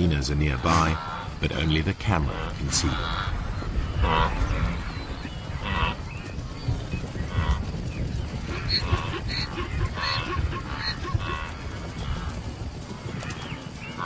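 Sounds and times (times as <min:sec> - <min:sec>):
low rumble: 0:00.7 - 0:13.1.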